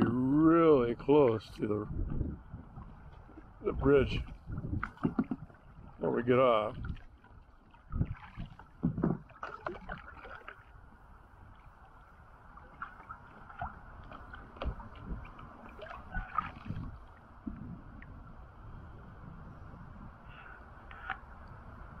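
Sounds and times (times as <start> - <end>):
river water lapping on hull: 0.0 - 22.0
kayak paddle strokes splashing: 2.6 - 18.6, 20.3 - 21.7.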